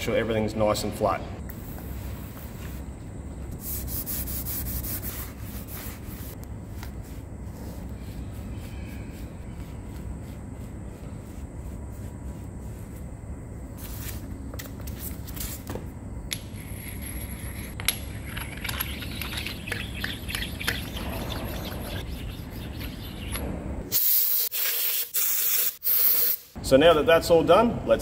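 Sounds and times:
sharpening stone rasping on steel: 19.4 - 23.4
short loud hissing bursts: 23.9 - 26.6.

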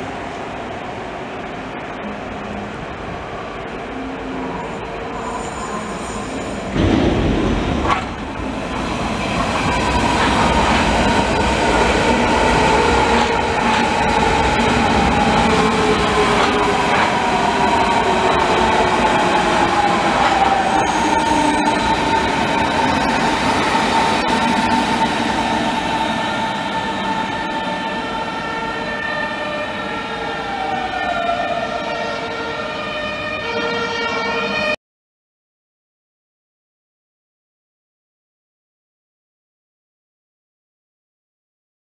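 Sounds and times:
wheels rumbling on rail: 0.0 - 32.6.

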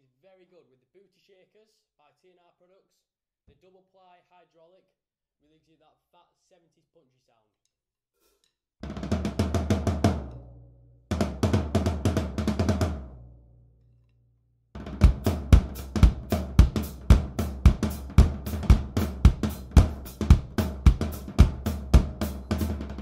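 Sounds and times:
drum fills with sticks: 8.8 - 10.5, 11.1 - 13.2, 14.8 - 23.0
drum groove: 8.8 - 13.2, 14.8 - 23.0.

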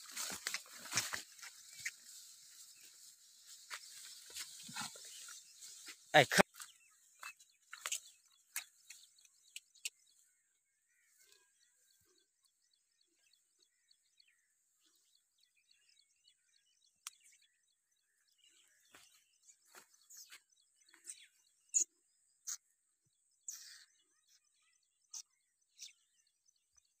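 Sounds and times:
rustling shrubs and grass: 0.0 - 12.0, 18.3 - 21.8.

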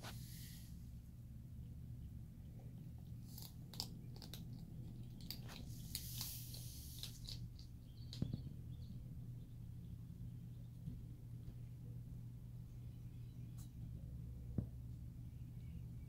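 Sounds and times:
skunks crunching dry kibble: 3.0 - 8.9.

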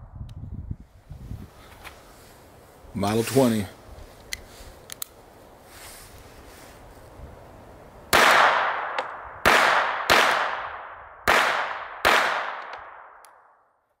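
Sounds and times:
pistol shots with echo: 8.1 - 13.6.

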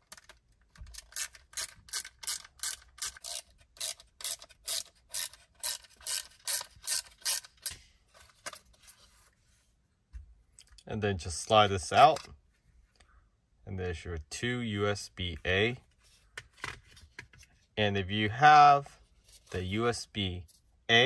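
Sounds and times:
ratcheting screwdriver clicking: 1.0 - 7.8.

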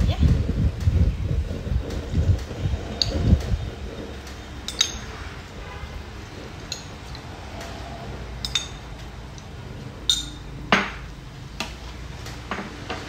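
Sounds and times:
metal ladle clinking on pot: 4.6 - 5.3, 8.4 - 8.9, 10.1 - 11.1.

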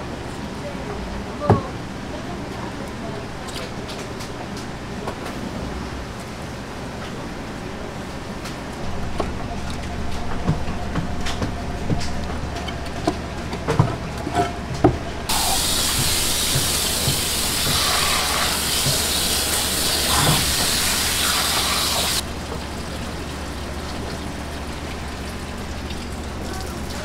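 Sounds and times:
hose water jet hissing: 15.3 - 22.2.

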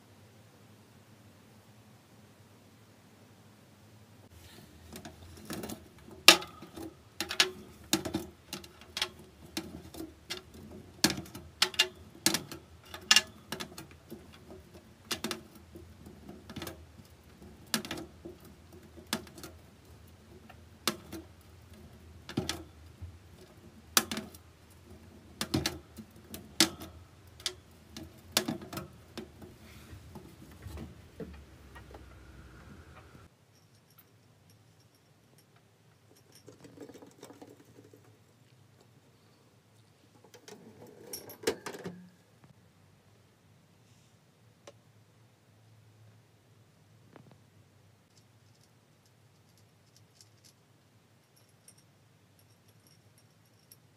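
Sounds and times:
faint steady hum: 0.0 - 53.9
clicks and taps in plastic cage: 4.9 - 32.0.

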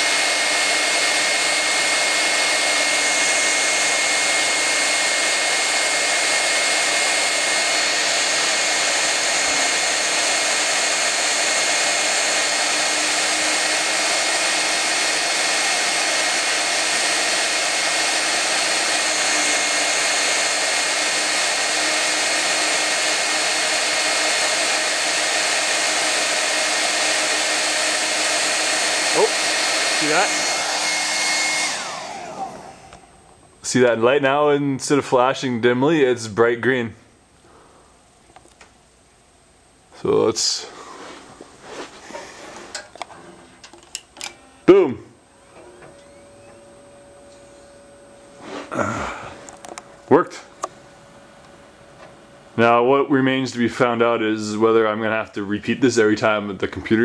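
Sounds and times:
hair dryer running: 0.0 - 33.2, 43.9 - 44.9, 45.5 - 54.5.

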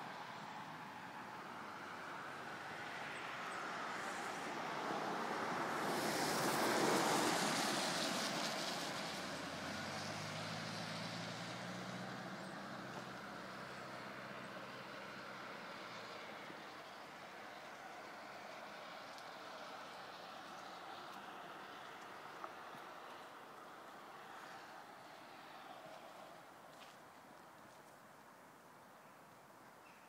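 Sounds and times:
low engine hum: 0.1 - 26.5
tyre hiss on wet road: 2.8 - 13.6.

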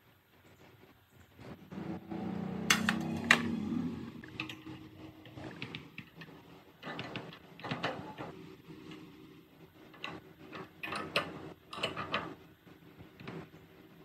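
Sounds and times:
low hum: 1.4 - 6.0.

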